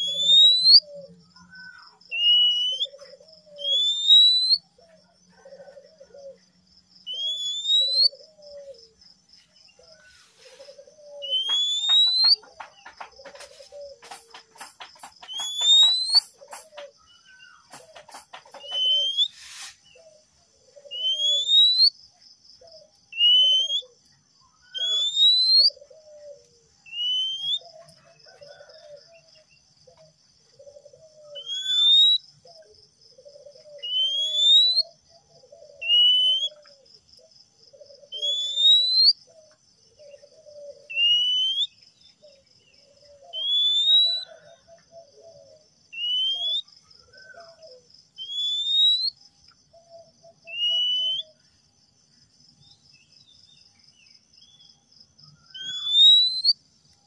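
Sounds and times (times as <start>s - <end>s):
bird chattering notes: 0.0s - 0.8s, 11.2s - 17.0s, 17.7s - 19.7s
bird singing rising whistles: 0.0s - 1.1s, 2.1s - 4.7s, 7.1s - 8.5s, 11.0s - 12.5s, 15.2s - 16.4s, 18.6s - 19.7s, 20.9s - 22.0s, 23.1s - 23.9s, 24.7s - 25.8s, 26.8s - 27.7s, 31.3s - 32.2s, 33.8s - 35.0s, 35.8s - 36.7s, 38.1s - 39.2s, 40.5s - 41.8s, 43.3s - 44.4s, 45.9s - 47.5s, 48.2s - 49.2s, 50.4s - 51.4s, 55.4s - 56.6s.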